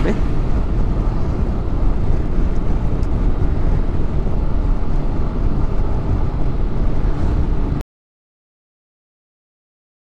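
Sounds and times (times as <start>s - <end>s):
wind rumbling on microphone: 0.0s - 7.8s.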